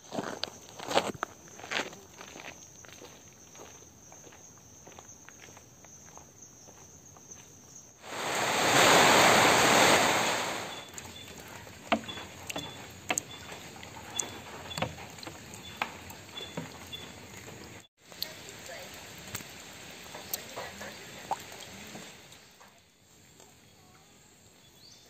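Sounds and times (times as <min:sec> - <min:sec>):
loud rush of noise: 0:08.0 - 0:10.8
faint high chirp: 0:10.3 - 0:14.9.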